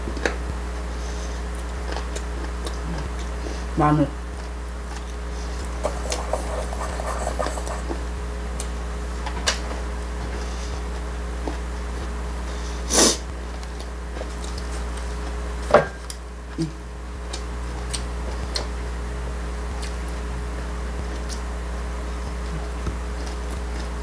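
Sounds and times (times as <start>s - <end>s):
steady low hum: 0.0s - 24.0s
person sniffing: 5.7s - 8.0s, 12.6s - 13.2s.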